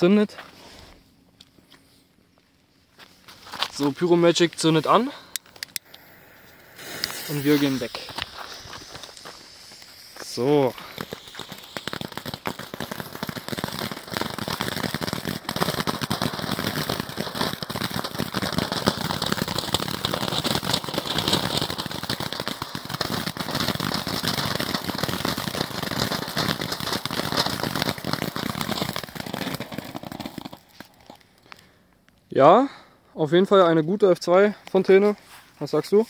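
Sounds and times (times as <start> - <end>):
small crackles: 1.4 - 32.3
firework fountain hissing: 4.8 - 31.2.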